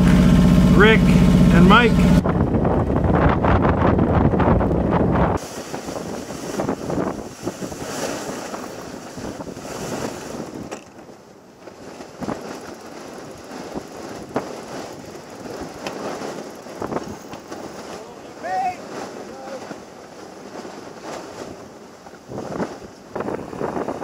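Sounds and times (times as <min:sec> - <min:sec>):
wind buffeting microphone: 0:00.0 - 0:24.0
water rushing and splashing: 0:05.4 - 0:10.7.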